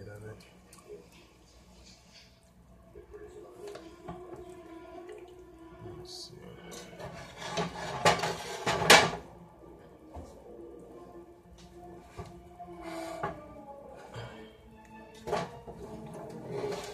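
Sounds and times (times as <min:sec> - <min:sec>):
spoon scraping in a skillet: 0:06.8 - 0:09.0, 0:16.3 - 0:16.9.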